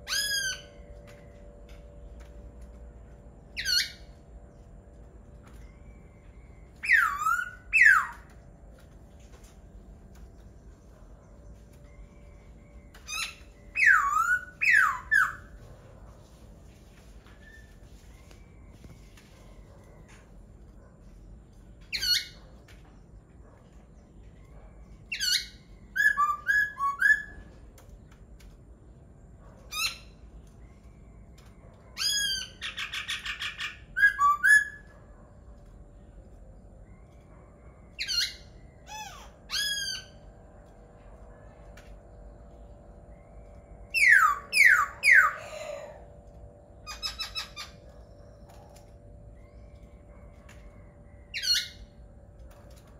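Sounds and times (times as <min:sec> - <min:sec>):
bird whistling song: 0:00.0 - 0:00.9, 0:03.6 - 0:04.1, 0:06.8 - 0:08.4, 0:12.7 - 0:15.6, 0:25.1 - 0:27.5, 0:32.0 - 0:34.9, 0:38.0 - 0:40.2, 0:43.8 - 0:46.0.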